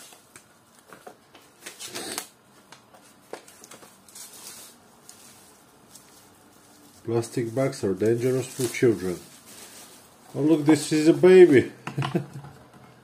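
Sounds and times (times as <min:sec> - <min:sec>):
paper leaflets rustling: 0:00.0 - 0:11.6
bubble-wrap bag crinkling: 0:03.0 - 0:11.6.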